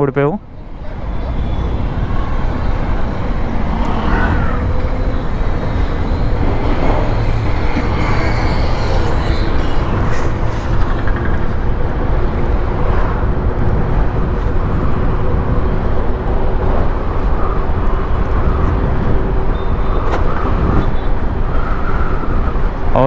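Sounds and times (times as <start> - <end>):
wind rushing on microphone: 0.0 - 23.0
tyre on road noise: 0.4 - 22.0.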